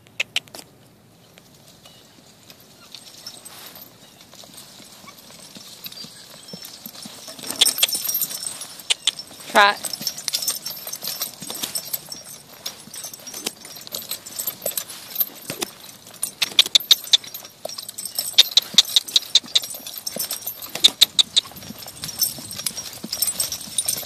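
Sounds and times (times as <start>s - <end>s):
horse hoofbeats on dirt: 0.2s - 24.0s
tack jingling: 1.5s - 24.0s.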